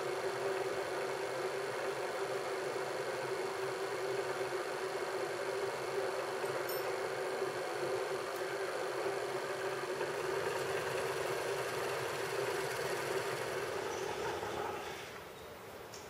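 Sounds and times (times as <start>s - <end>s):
milling machine drilling wood: 9.8s - 15.2s.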